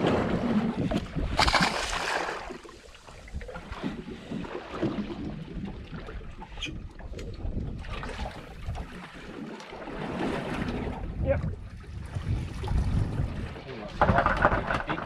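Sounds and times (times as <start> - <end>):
wind on microphone: 0.0 - 9.0, 9.9 - 15.0
water lapping against hull: 0.0 - 15.0
fish splashing in water: 1.3 - 3.6.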